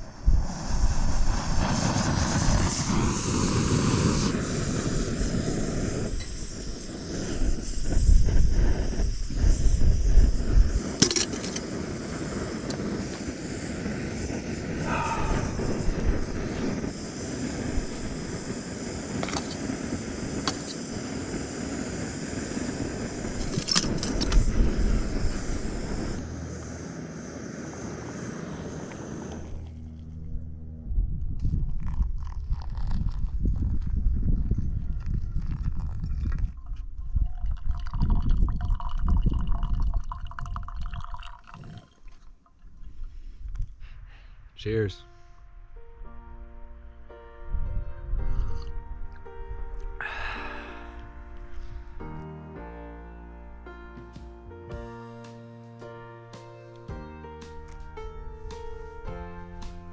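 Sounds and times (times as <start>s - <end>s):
camping stove hissing: 0.0s - 29.7s, 31.9s - 41.8s, 49.8s - 52.1s.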